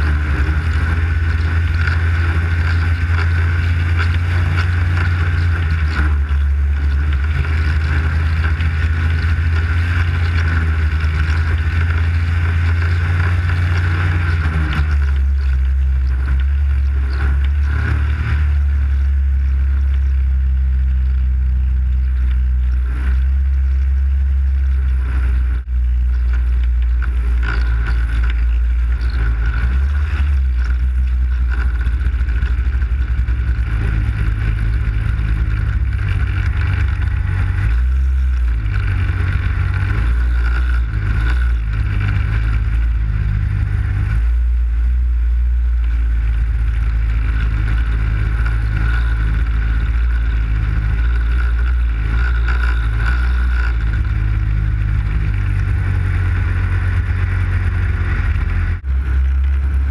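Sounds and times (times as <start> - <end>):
snowmobile engine droning: 0.0 - 59.9.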